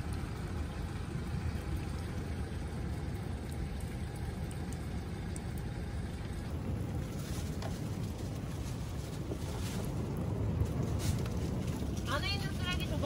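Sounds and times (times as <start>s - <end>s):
wind buffeting microphone: 6.0s - 13.0s.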